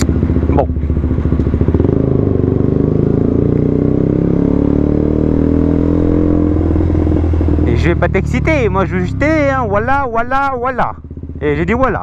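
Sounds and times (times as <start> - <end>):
motorcycle engine accelerating: 0.0 - 12.0.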